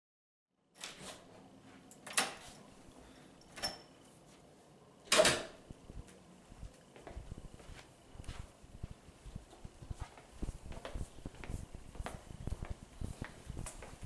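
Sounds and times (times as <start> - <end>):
soft footsteps: 5.6 - 14.0.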